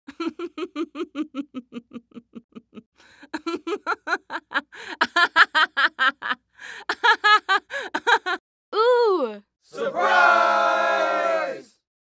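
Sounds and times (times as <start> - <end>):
lower laugh: 0.1 - 8.4.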